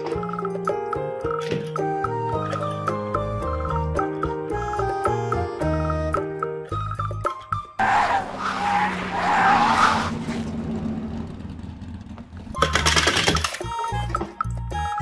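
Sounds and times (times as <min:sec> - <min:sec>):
children's music: 0:00.0 - 0:07.8, 0:12.8 - 0:15.0
cartoon car tyres screeching: 0:07.8 - 0:11.4.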